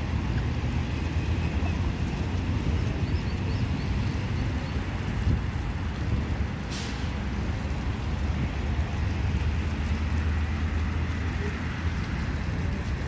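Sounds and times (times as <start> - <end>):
fountain splashing: 0.0 - 13.0
wind buffeting microphone: 1.6 - 9.6.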